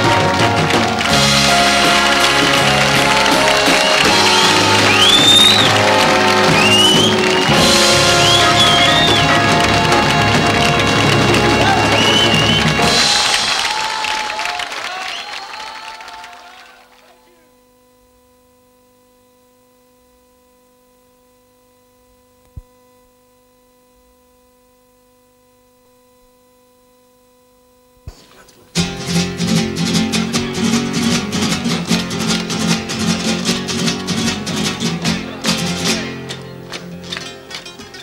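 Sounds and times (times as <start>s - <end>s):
flamenco guitar strumming: 0.0s - 13.5s, 28.1s - 38.0s
faint steady hum: 16.4s - 28.8s.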